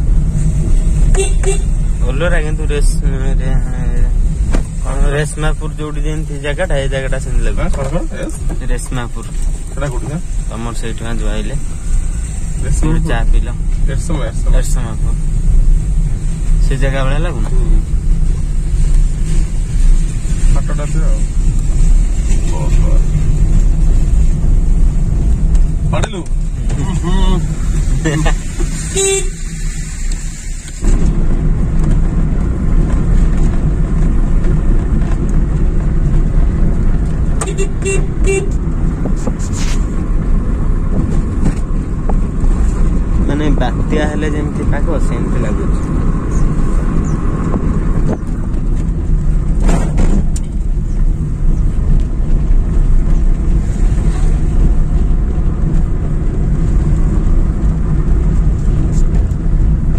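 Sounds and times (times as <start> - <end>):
vehicle engine and road rumble: 0.0 - 59.9
wind buffeting microphone: 30.8 - 59.9.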